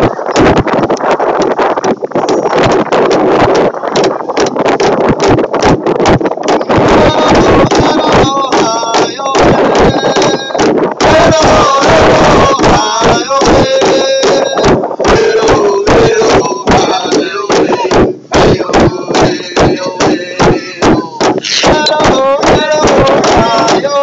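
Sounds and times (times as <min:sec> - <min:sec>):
large drum beaten steadily: 0:00.0 - 0:24.0
person singing: 0:06.6 - 0:24.0.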